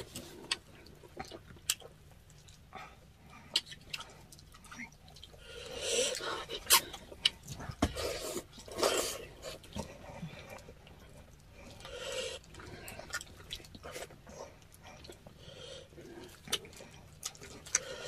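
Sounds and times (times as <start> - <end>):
people chewing: 0.0 - 18.0
mouth clicks and smacks: 3.5 - 5.3.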